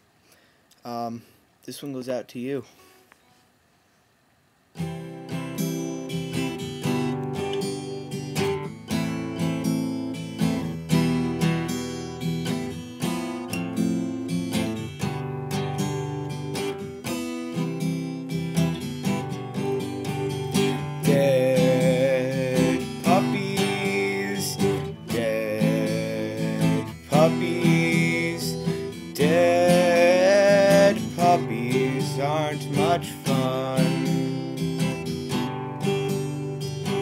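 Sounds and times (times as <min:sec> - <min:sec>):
acoustic guitar strumming: 0:04.8 - 0:37.0
man singing: 0:21.0 - 0:34.8.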